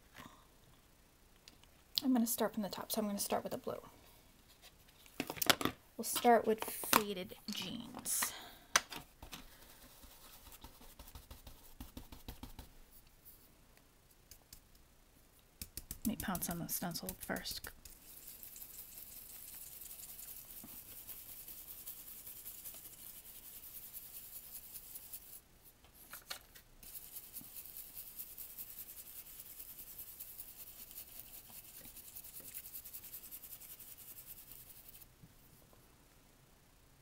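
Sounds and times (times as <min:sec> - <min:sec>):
brush rubbing ink through stencil: 0:09.6 - 0:12.7, 0:15.7 - 0:25.4, 0:26.8 - 0:35.1.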